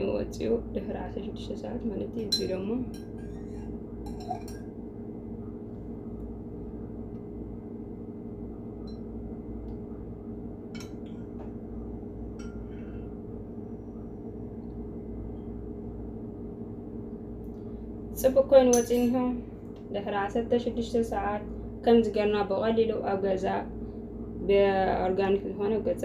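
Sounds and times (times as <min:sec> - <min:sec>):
steady low hum: 0:00.0 - 0:26.0
metal spoon clinking on glass jar: 0:03.4 - 0:04.6, 0:18.7 - 0:19.2.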